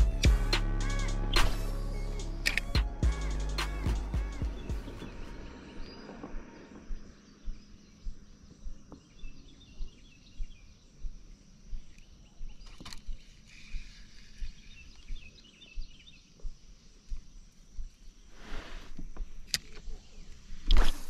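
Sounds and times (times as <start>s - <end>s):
background music: 0.0s - 6.8s
faint bird chirps: 3.2s - 21.0s
insects: 4.8s - 21.0s.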